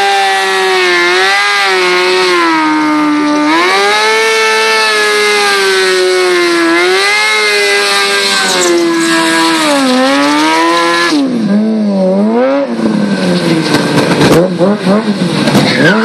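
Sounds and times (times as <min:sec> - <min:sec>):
motorcycle engine revving high: 0:00.0 - 0:16.0.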